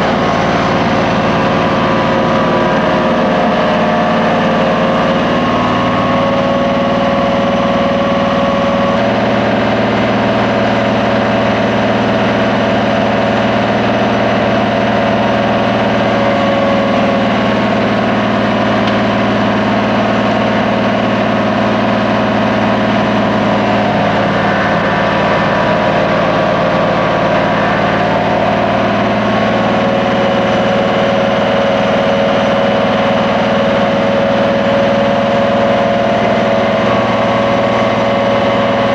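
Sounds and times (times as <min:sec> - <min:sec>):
vacuum excavator running: 0:00.0 - 0:38.9.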